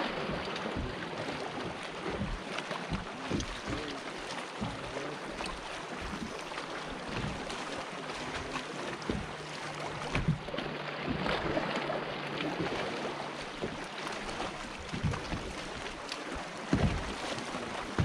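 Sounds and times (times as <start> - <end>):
water lapping against boat hull: 0.0 - 18.0
small knocks: 14.9 - 17.2.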